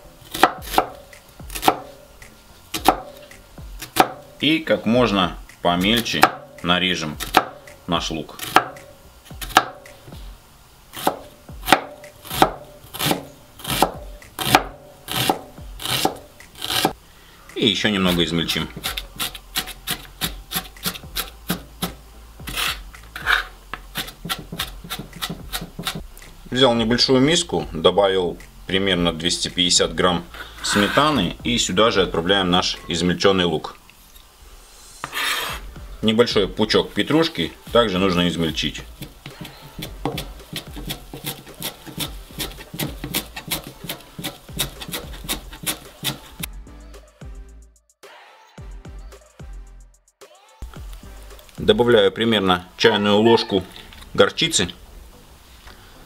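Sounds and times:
knife chopping on plastic board: 0.3 - 1.9, 2.7 - 3.2, 3.8 - 4.2, 5.8 - 6.5, 7.2 - 7.6, 8.4 - 9.9, 11.0 - 17.0, 18.7 - 26.0, 39.0 - 46.5
knife scraping board: 12.2 - 17.0, 18.1 - 26.0, 30.4 - 31.4, 35.0 - 35.7, 39.0 - 46.5.

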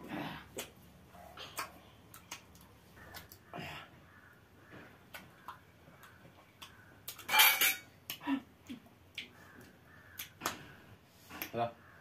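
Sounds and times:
people chewing and sucking: 0.0 - 4.0, 4.6 - 7.3, 8.0 - 11.6
mouth smacks and plate clicks: 5.1 - 10.6.

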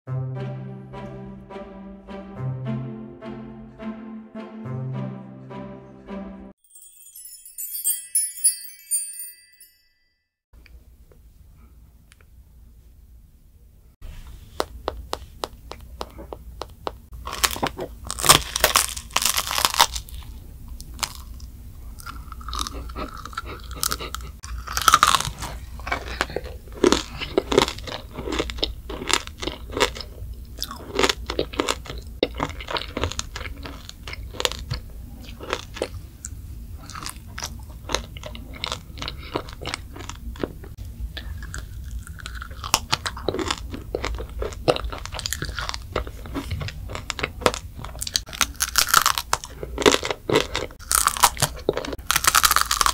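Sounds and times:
child chewing: 14.6 - 52.9
crunching sugar glaze: 14.6 - 52.9.

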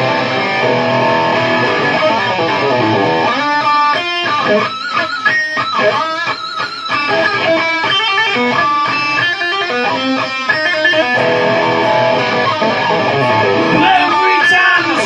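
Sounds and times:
rock band music led by guitar: 0.0 - 15.0.

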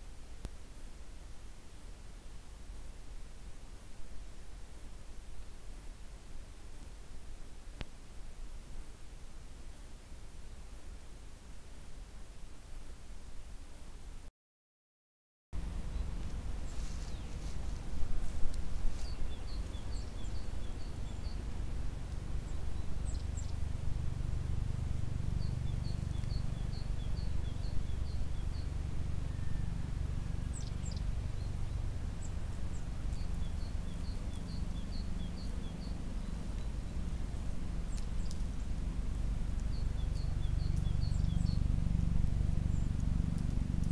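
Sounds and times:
steady low rumble: 15.6 - 43.9
small songbird singing: 15.8 - 23.8, 24.5 - 43.9.

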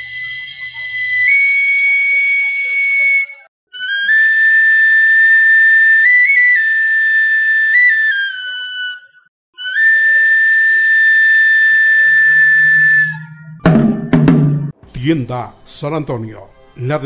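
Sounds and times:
flute-like wind instrument: 0.0 - 14.2.

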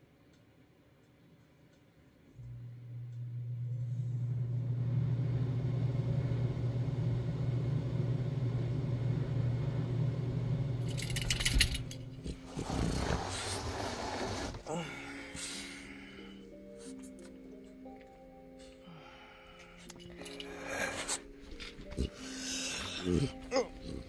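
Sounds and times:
keys jangling: 10.9 - 12.2.

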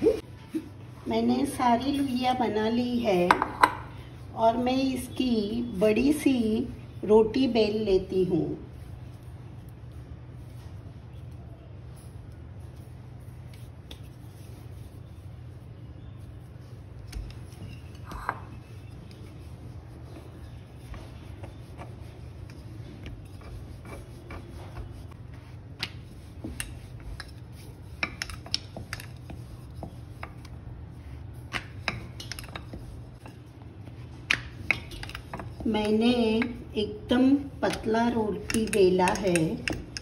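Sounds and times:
steady low hum: 0.0 - 40.0
rolling pin rolling dough: 8.7 - 40.0.

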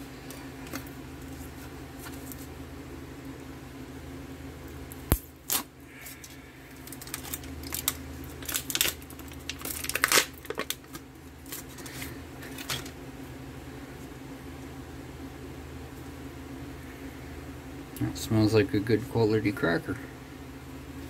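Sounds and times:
steady low hum: 0.0 - 21.0
packaging tearing and crinkling: 5.1 - 13.0.

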